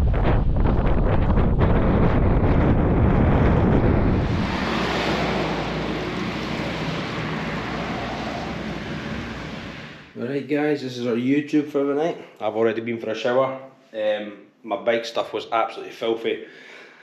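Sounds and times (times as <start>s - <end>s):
wind buffeting microphone: 0.0s - 10.1s.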